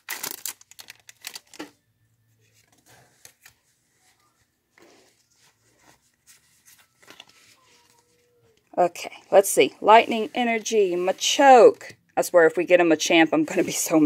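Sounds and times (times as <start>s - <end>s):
foil wrapper crinkling: 0.0s - 1.7s.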